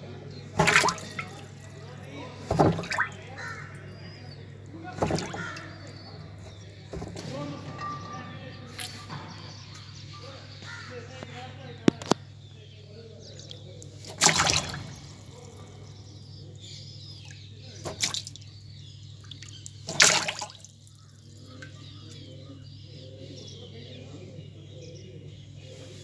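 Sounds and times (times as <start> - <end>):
bird splashing in water: 0.5 - 3.8, 4.9 - 7.2, 13.9 - 15.8, 17.2 - 21.9.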